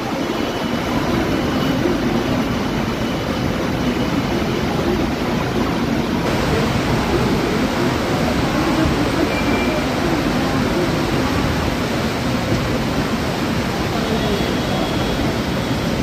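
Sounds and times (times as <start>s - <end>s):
train rolling slowly: 0.0s - 16.0s
heavy rain hissing: 6.2s - 16.0s.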